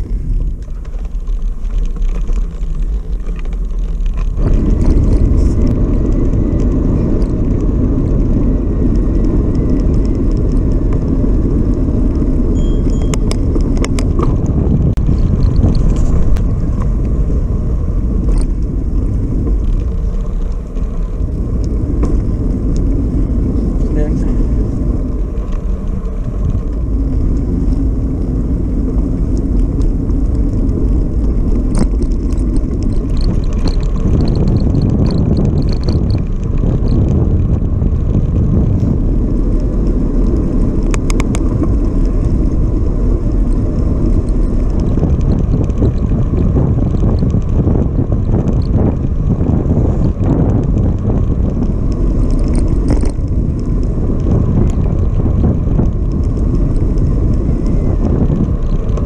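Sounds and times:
tyres rumbling on tarmac: 0.0s - 59.0s
wind buffeting microphone: 0.0s - 59.0s
clatter of sharp clicks: 40.3s - 42.1s.

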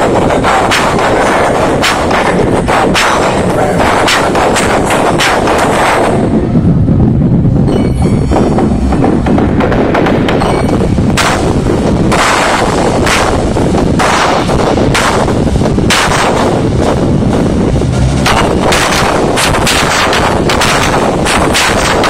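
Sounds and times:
loud distorted dance music: 0.0s - 22.0s.

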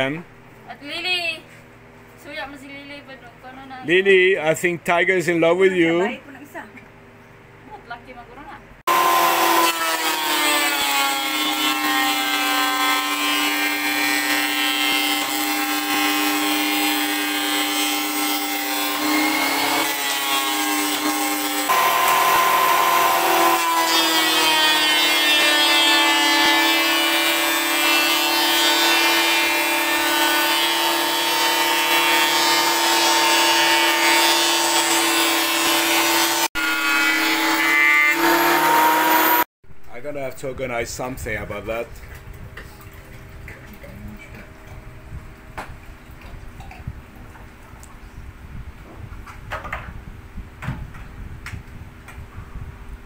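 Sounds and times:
thickness planer cutting wood: 8.9s - 39.5s.

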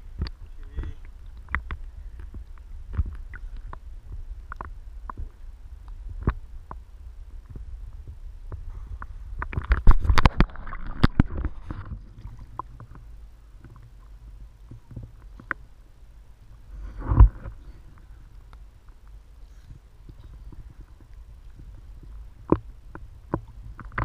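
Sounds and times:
seawater sloshing and lapping: 9.4s - 15.6s.

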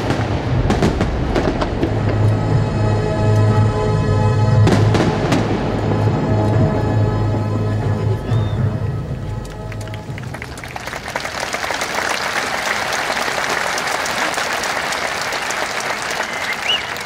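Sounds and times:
fireworks show music: 0.0s - 17.0s
crowd applauding: 7.8s - 17.0s
whistles from crowd: 8.2s - 8.7s, 10.5s - 17.0s.

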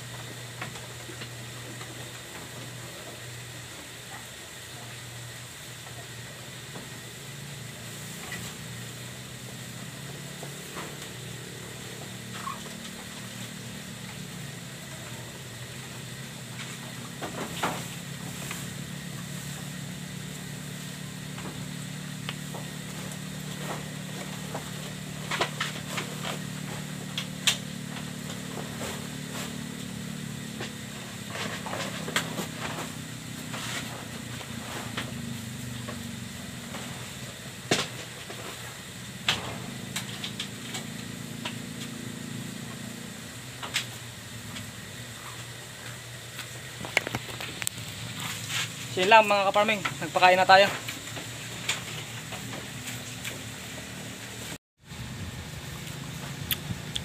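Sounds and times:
goats feeding: 0.0s - 38.7s
low mechanical hum: 0.0s - 57.0s
knocks and rustles: 16.4s - 43.0s.

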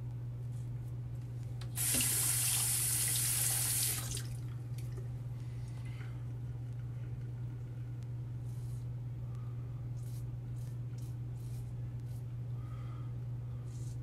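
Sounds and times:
tap water running: 1.7s - 5.0s.

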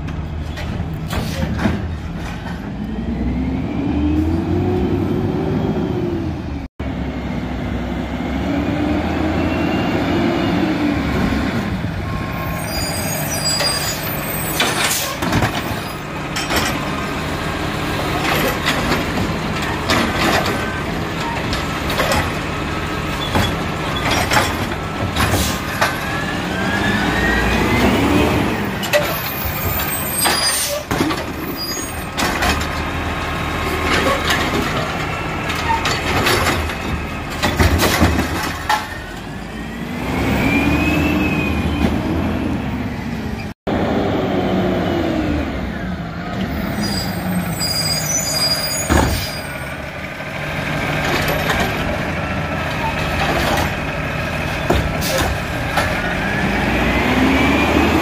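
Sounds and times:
garbage truck diesel engine: 0.0s - 58.0s
arm and cart banging: 18.2s - 26.2s.

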